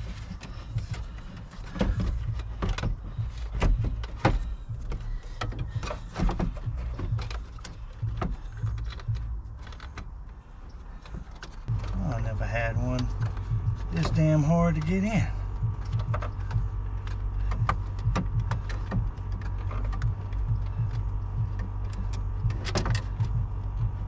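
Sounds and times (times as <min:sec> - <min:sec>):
low steady rumble: 0:00.0 - 0:24.0
plastic and metal clicks and knocks: 0:00.0 - 0:24.0.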